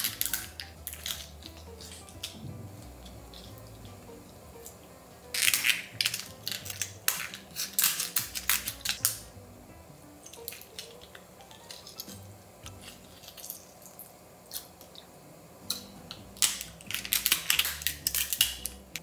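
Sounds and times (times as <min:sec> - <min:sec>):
lobster shells crackling: 0:00.0 - 0:09.3, 0:10.1 - 0:15.0, 0:15.7 - 0:19.0
soft background music: 0:00.0 - 0:19.0.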